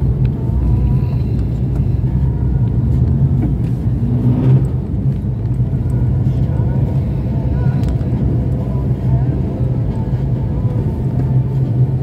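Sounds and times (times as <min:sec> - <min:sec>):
car engine and road rumble: 0:00.0 - 0:12.0
rising engine note: 0:02.8 - 0:06.2.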